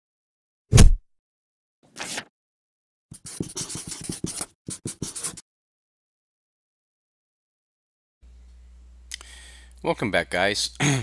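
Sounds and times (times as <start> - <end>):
marker scratching on paper: 3.1 - 5.4.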